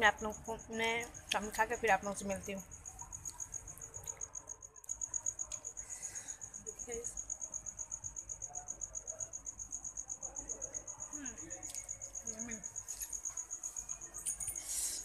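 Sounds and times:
cricket chirping: 0.0 - 15.0.

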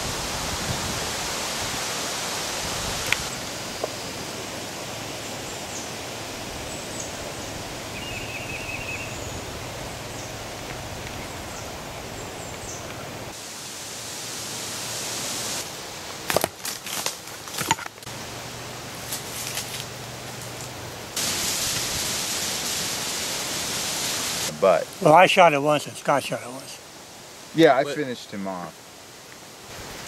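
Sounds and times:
rushing hiss of background noise: 0.0 - 30.0
faint bird chirps: 7.9 - 9.5.

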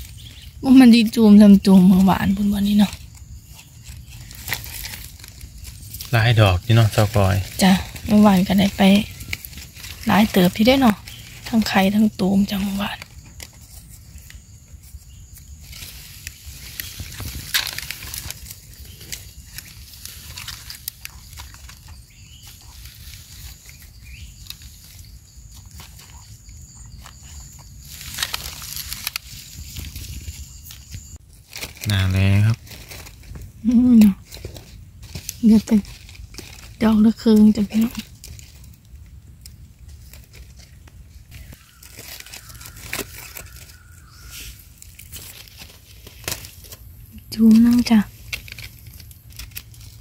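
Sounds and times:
dry leaves crinkling: 0.0 - 50.0
leaf litter crackling and rustling: 0.0 - 50.0
knife scraping mushroom stems: 41.4 - 50.0.

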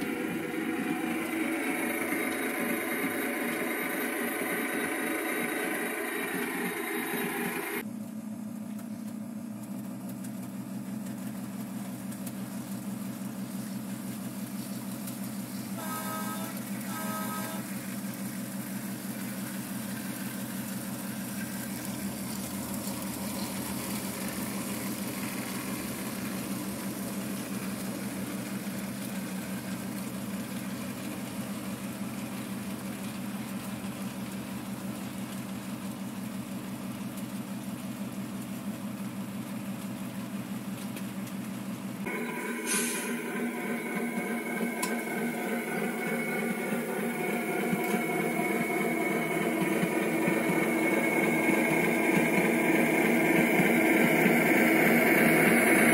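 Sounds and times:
model train engine drone: 0.0 - 7.9, 13.2 - 35.7, 42.0 - 55.9
train horn toots: 15.8 - 17.7.

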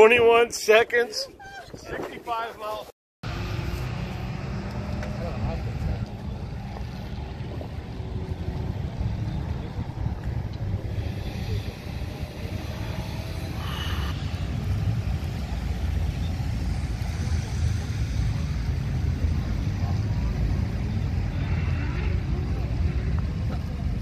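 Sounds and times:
wind buffeting microphone: 0.0 - 2.9, 4.4 - 19.8
car engines rumbling: 1.0 - 24.0.

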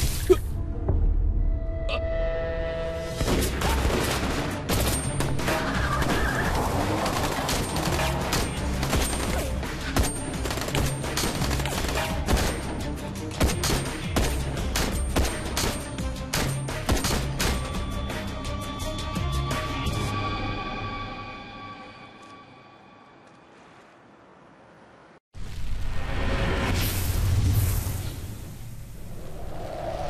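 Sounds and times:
tense dramatic music: 0.4 - 23.2
rapid gunfire: 6.6 - 12.6.

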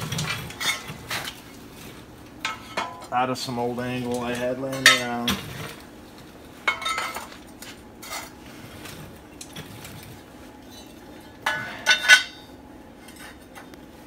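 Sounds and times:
steel angle clanking: 10.7 - 12.5.

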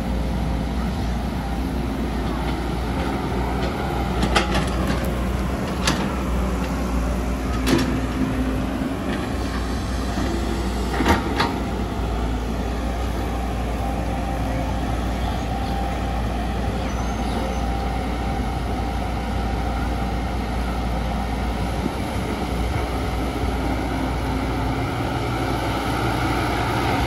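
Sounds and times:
excavator diesel engine running: 0.0 - 27.0.

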